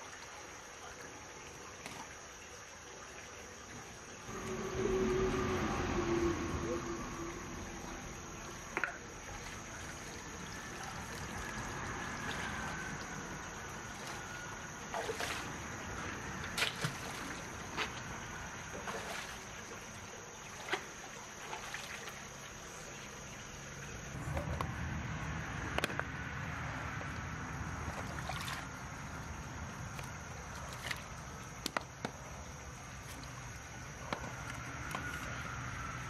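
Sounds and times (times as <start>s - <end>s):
stream trickling over rocks: 0.0s - 36.0s
small splashes: 6.9s - 23.1s, 26.9s - 36.0s.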